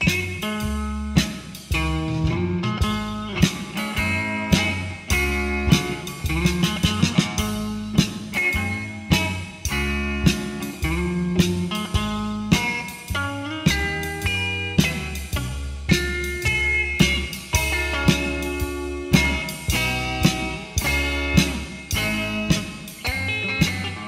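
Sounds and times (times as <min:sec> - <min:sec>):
blues guitar melody: 0:00.0 - 0:24.0
drums: 0:00.0 - 0:24.0
electric bass: 0:00.0 - 0:24.0.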